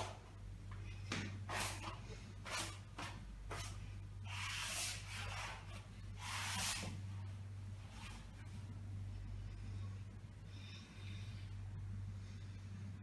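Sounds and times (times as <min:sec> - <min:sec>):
steady low hum: 0:00.0 - 0:13.0
person breathing: 0:09.0 - 0:13.0.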